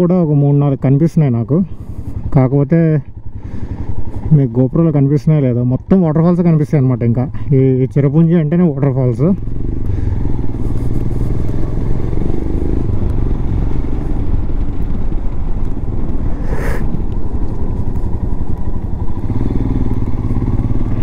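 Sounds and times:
motorcycle engine running: 0.1 - 21.0
brief rush of noise: 16.4 - 17.0.

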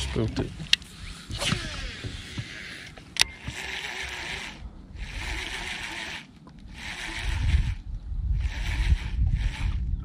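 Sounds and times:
fishing reel being cranked: 1.4 - 7.8, 8.4 - 9.8.

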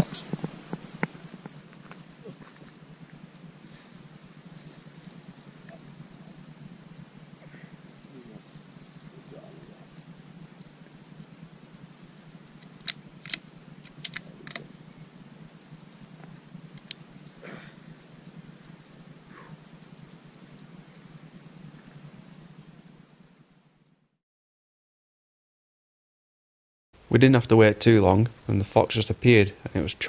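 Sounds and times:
faint high ticking: 0.0 - 24.0
steady low hum: 0.0 - 24.2
sharp clicks: 7.2 - 11.4, 12.0 - 17.4, 19.8 - 21.6.

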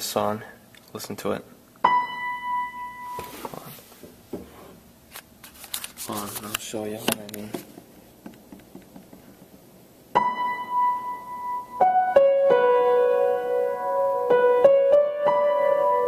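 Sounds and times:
piano played slowly: 1.8 - 3.3, 10.1 - 16.0.

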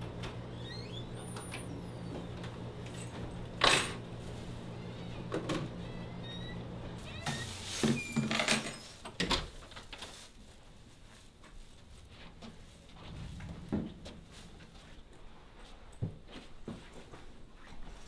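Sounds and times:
electrical hum: 0.0 - 9.8, 10.4 - 16.9
rustling: 7.0 - 18.0.

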